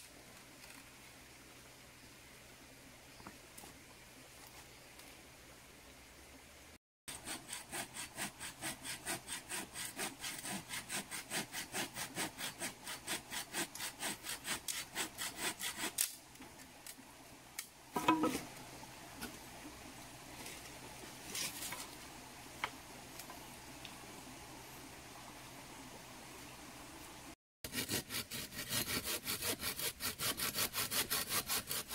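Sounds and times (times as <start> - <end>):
hand saw cutting wood: 7.1 - 16.2, 27.6 - 31.9.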